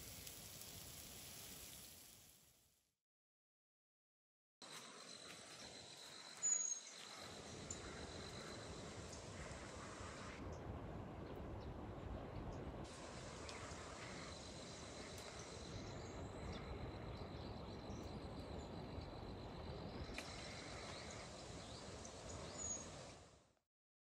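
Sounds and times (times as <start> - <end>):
steady rushing hiss: 0.0 - 2.6, 6.9 - 10.4, 12.8 - 17.2, 19.9 - 23.6.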